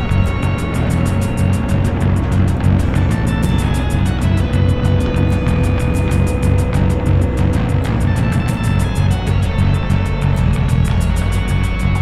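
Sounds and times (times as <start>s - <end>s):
background music with fast beat: 0.0s - 12.0s.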